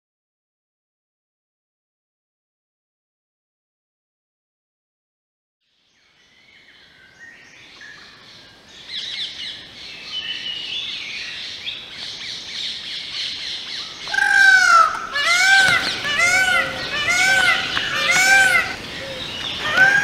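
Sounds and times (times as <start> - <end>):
mixed birdsong: 5.7 - 20.0
peafowl calling: 13.8 - 20.0.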